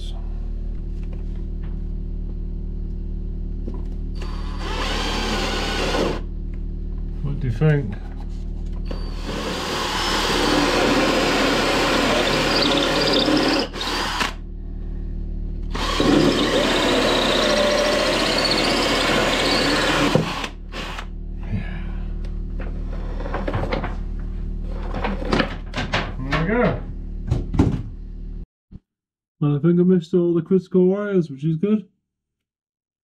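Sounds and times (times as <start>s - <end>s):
drill with hole saw cutting: 4.2s - 6.3s, 8.9s - 14.4s, 15.7s - 21.1s.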